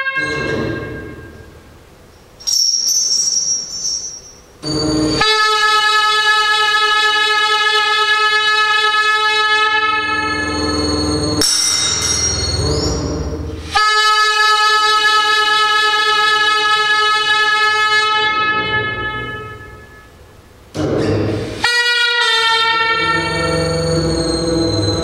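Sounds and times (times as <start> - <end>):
high whistling tone: 0.2 - 5.3, 10.4 - 13.3, 23.1 - 25.0
held saxophone multiphonic note: 4.6 - 10.7, 13.7 - 20.2, 21.6 - 25.0.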